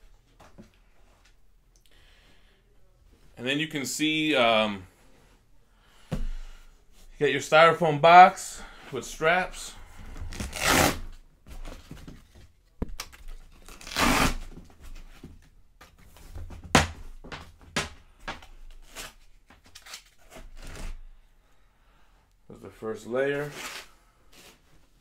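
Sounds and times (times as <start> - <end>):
strap scraping across foam: 10.2 - 11.2, 13.6 - 14.5.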